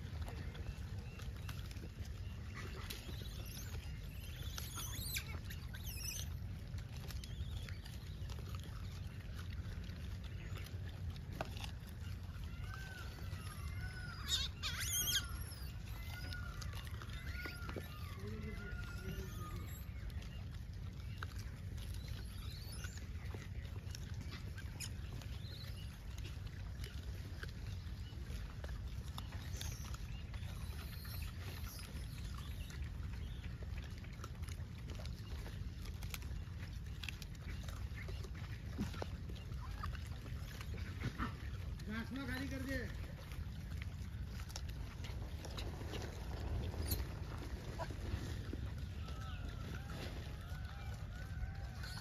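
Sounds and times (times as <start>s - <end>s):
small rustles and ticks: 0.0s - 52.0s
high chirping calls: 2.6s - 6.4s, 13.4s - 19.9s
wind rumble on microphone: 43.4s - 52.0s.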